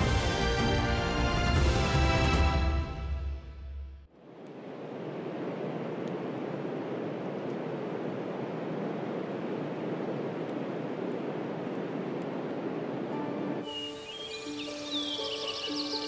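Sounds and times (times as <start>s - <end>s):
steady rushing noise: 4.1s - 14.9s.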